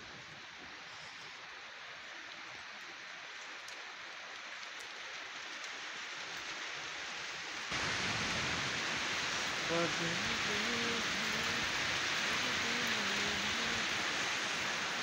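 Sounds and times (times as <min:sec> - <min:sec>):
steady rain hiss: 0:00.0 - 0:15.0
single raindrop ticks: 0:02.8 - 0:06.5.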